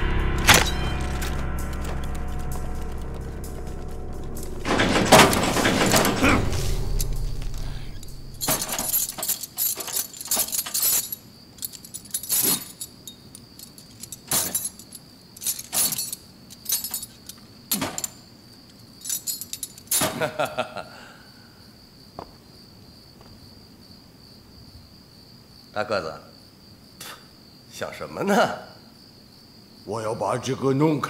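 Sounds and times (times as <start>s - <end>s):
loud crash: 0.0s - 9.3s
metal chain rattling: 0.3s - 20.0s.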